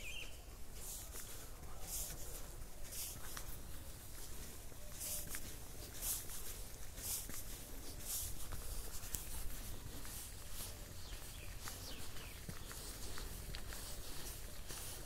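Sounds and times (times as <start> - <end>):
faint bird chirps: 0.0 - 0.5
footsteps crunching on dry leaves: 0.0 - 15.0.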